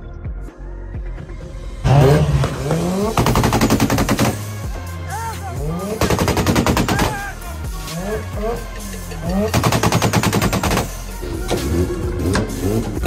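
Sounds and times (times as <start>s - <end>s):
background music: 0.0s - 13.0s
rotary engine revving: 1.8s - 4.6s, 7.8s - 13.0s.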